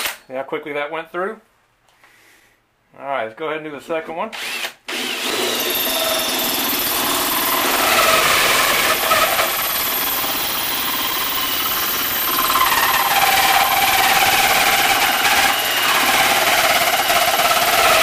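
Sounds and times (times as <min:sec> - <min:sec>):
drill hole saw grinding metal: 0:04.4 - 0:18.0.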